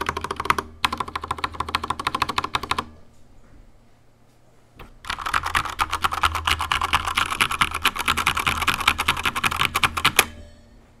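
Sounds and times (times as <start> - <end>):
fast typing on mechanical keyboard: 0.0 - 2.9, 5.0 - 10.3.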